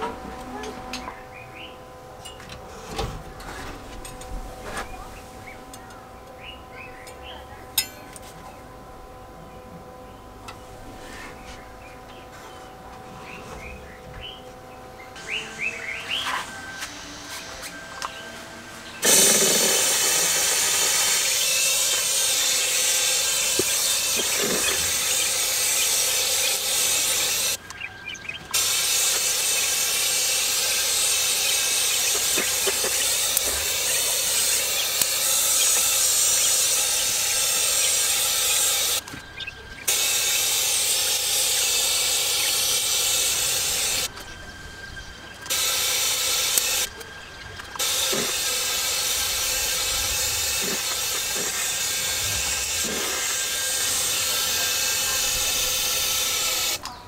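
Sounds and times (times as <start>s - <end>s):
spray gun hissing: 18.9s - 27.6s, 28.5s - 39.0s, 39.9s - 44.1s, 45.5s - 46.9s, 47.8s - 56.8s.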